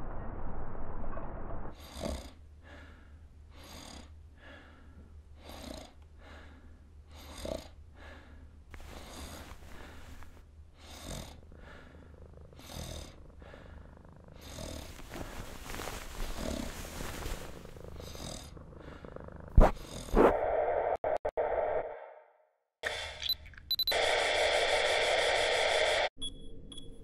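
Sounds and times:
person snoring: 8.8 - 20.4.

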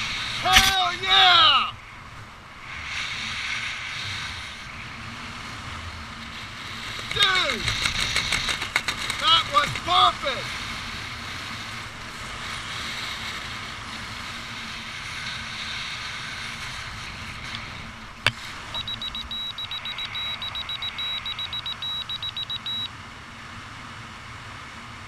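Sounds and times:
sharp click: 0.5 - 0.8
rapid high-pitched electronic beeping: 18.8 - 22.9.

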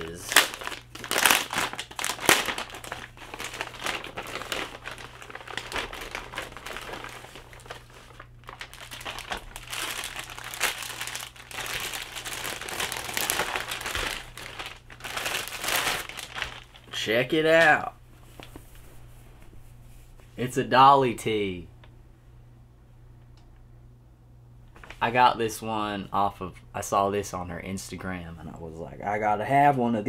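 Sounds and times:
plastic packaging crinkling: 0.0 - 18.7.

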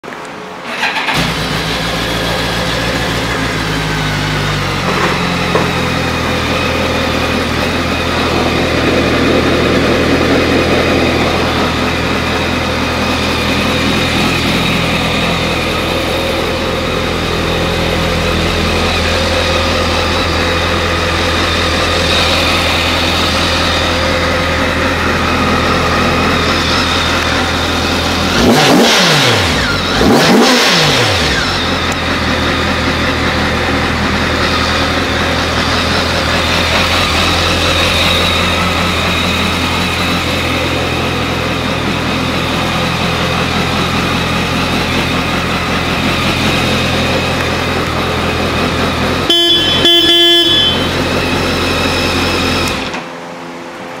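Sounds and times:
motorcycle engine idling and revving: 0.0 - 54.0
horn double beep: 49.2 - 51.2.

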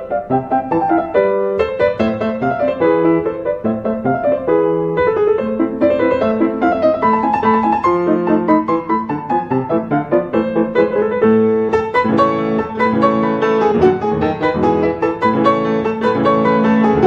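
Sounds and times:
piano music: 0.0 - 17.0.

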